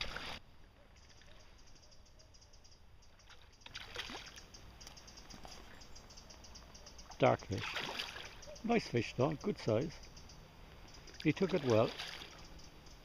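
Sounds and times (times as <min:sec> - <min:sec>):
fish splashing in water: 0:03.3 - 0:04.5, 0:07.6 - 0:08.4, 0:11.0 - 0:12.6
faint fast ticking: 0:04.4 - 0:07.4, 0:08.4 - 0:11.4, 0:12.2 - 0:13.0.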